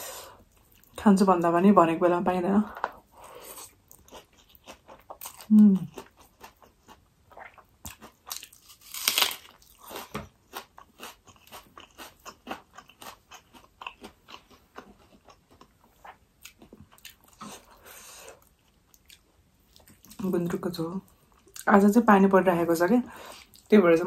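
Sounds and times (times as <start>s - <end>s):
chewing with wet mouth clicks: 9.9s - 17.6s, 18.4s - 20.2s.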